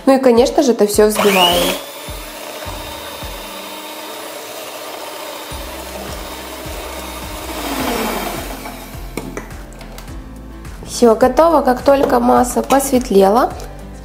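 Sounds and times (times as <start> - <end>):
electric hand mixer whirring: 1.0 - 9.4.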